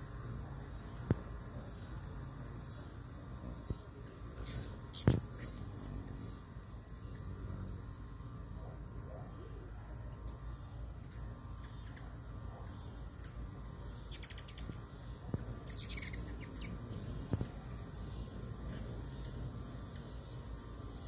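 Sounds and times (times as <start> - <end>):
low background hum: 0.0 - 21.0
hummingbirds squeaky chips: 0.6 - 6.3, 11.0 - 21.0.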